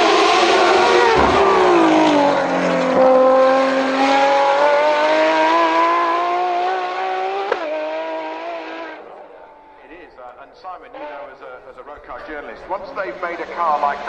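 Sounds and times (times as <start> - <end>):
car engine accelerating: 0.0 - 10.0.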